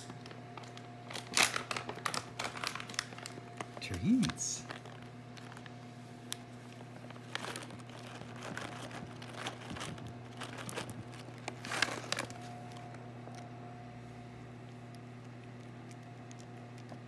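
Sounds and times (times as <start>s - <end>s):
plastic pouch crinkling: 0.2s - 13.4s.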